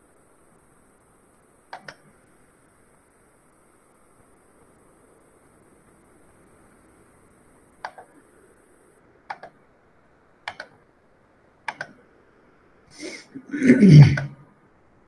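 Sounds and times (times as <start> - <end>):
computer mouse clicks: 1.7 - 2.1, 7.8 - 8.2, 9.3 - 9.7, 10.4 - 10.8, 11.6 - 12.0.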